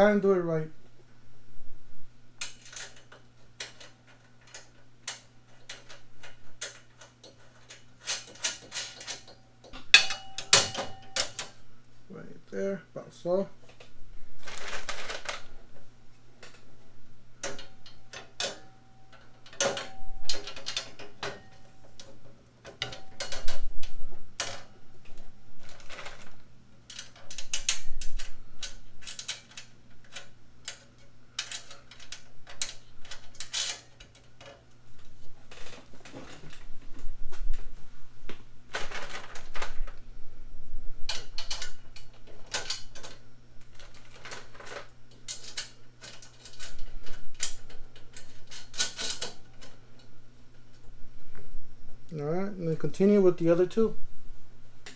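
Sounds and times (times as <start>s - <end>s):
hardware rattling: 2.4s - 11.6s, 17.4s - 34.8s, 41.1s - 50.0s
metal frame parts knocking: 2.7s - 11.6s.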